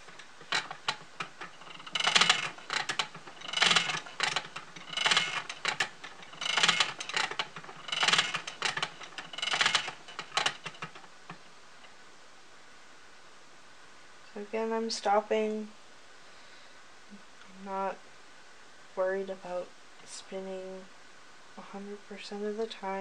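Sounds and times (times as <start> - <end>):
spinning wheel clatter: 0.0 - 11.4.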